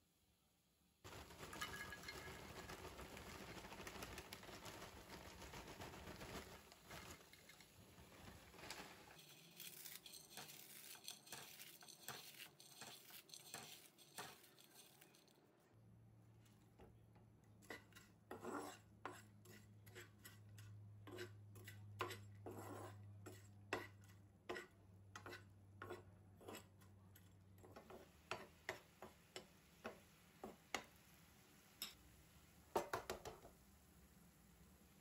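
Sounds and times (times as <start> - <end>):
fork tapping and scraping a pan: 9.9 - 15.2, 17.6 - 31.0, 31.8 - 32.0, 32.7 - 33.5.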